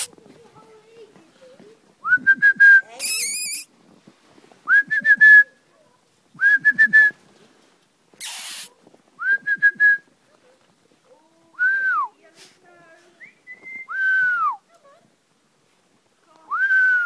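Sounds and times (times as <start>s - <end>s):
whistle rapid pips: 2.2s - 3.7s.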